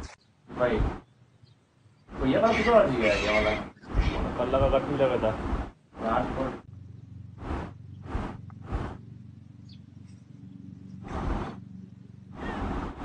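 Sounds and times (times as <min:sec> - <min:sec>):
low steady hum: 0:05.4 - 0:13.0
collar microphone rubbing scuffs: 0:07.4 - 0:09.0, 0:11.0 - 0:11.6.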